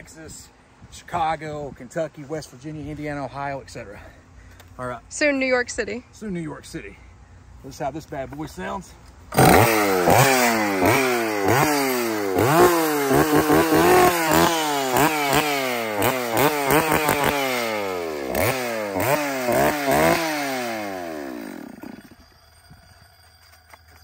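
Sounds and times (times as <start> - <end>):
chainsaw revving: 9.3 - 22.2.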